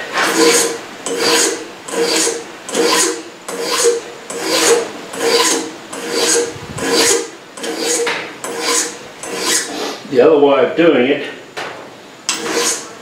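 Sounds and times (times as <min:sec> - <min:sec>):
hand file rasping on metal: 0:00.2 - 0:10.0, 0:12.3 - 0:12.9.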